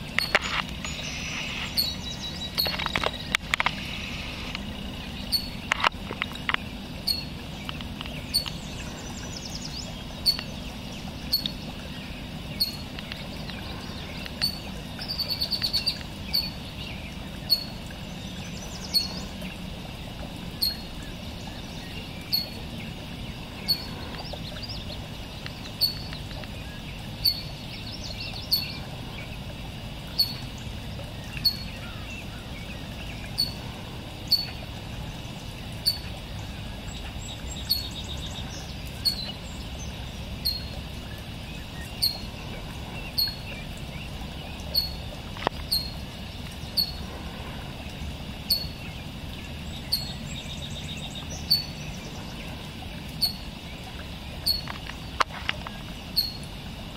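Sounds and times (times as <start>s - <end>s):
bird call notes: 0.1s - 5.9s, 6.5s - 11.8s, 12.5s - 16.6s, 23.4s - 26.5s, 30.1s - 30.5s, 31.2s - 34.7s, 37.0s - 39.4s, 41.7s - 43.5s, 46.7s - 47.2s.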